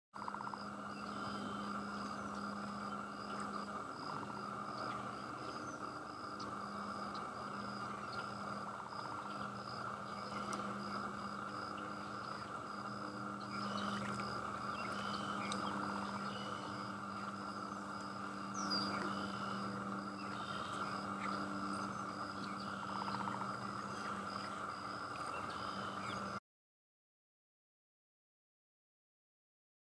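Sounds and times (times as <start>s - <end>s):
frogs and insects chorus: 0.2s - 26.4s
low drone: 0.2s - 26.4s
high pulsing call: 7.4s - 24.6s.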